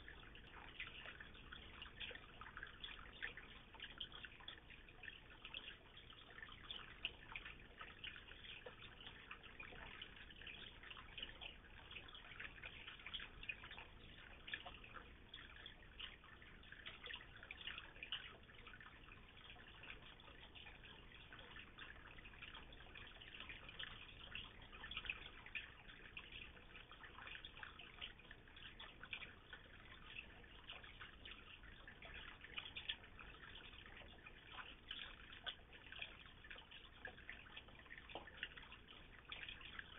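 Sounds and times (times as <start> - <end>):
water trickling into pond: 0.0 - 39.9.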